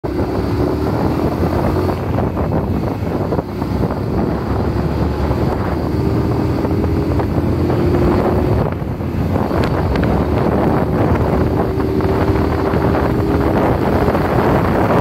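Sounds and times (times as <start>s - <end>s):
wind buffeting microphone: 0.0s - 15.0s
motorcycle engine running: 0.1s - 15.0s.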